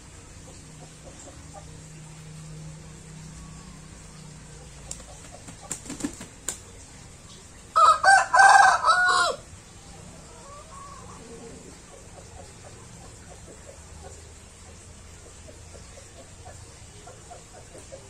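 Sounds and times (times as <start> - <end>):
rooster crowing: 7.8 - 9.5.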